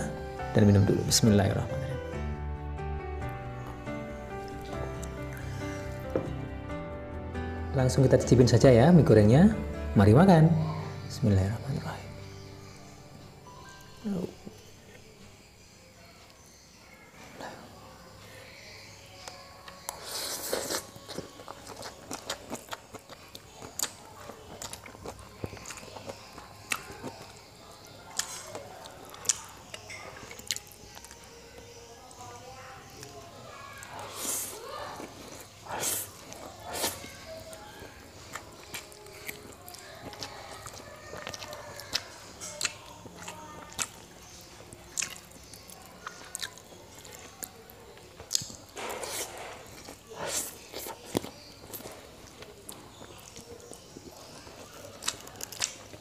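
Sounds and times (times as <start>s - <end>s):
wet chewing with mouth clicks: 19.1s - 31.5s, 33.8s - 56.0s
person slurping noodles: 20.0s - 20.9s.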